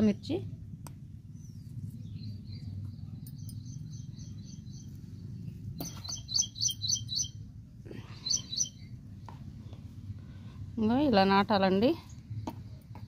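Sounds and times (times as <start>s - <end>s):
low rumble: 0.0s - 12.9s
birds chirping: 1.3s - 9.0s.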